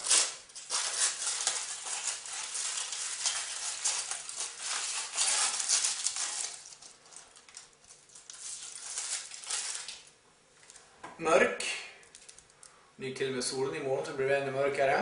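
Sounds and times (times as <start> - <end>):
foil wrapper crinkling: 0.0 - 10.9, 12.0 - 12.7.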